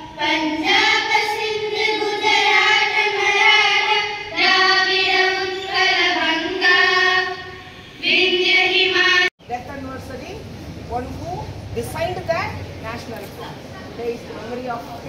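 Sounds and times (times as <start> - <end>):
children singing in unison: 0.0 - 9.3.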